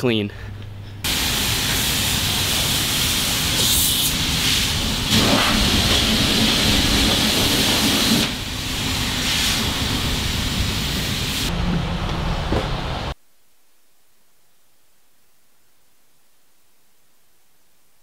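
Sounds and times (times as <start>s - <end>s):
pressure washer spraying water: 1.1s - 11.5s.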